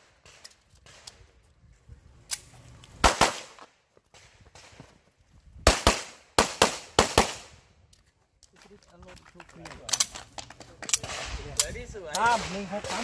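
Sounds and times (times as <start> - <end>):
pistol shots: 3.0 - 3.6, 5.7 - 7.5.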